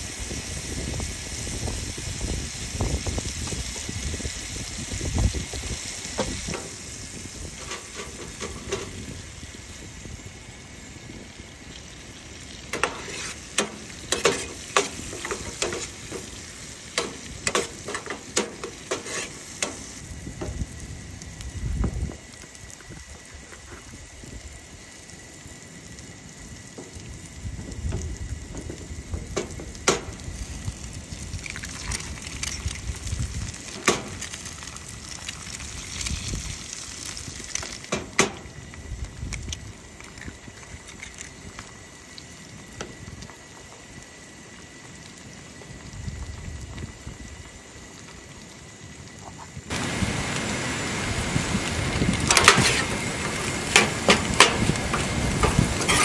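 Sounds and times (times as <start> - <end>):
camp stove low rumble: 0.0 - 56.0
meat sizzling in a pan: 0.0 - 56.0
metal spoon scraping pan: 12.8 - 16.0, 55.8 - 56.0.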